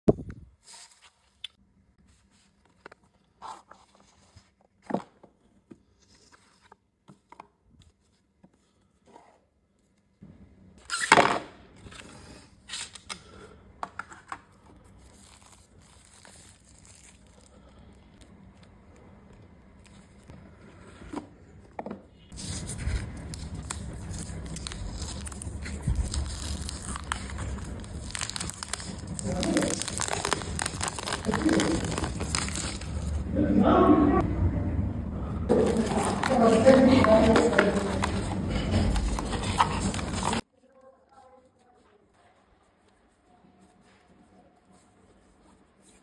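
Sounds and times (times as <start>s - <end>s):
plastic film crinkling: 14.5s - 20.5s, 22.3s - 33.3s, 35.5s - 40.5s
cardboard ripping: 22.3s - 33.2s, 35.5s - 40.4s.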